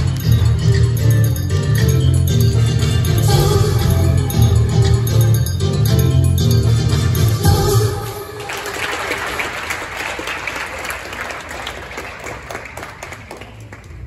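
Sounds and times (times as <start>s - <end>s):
floor exercise music: 0.0s - 8.4s
audience applauding: 8.4s - 14.0s.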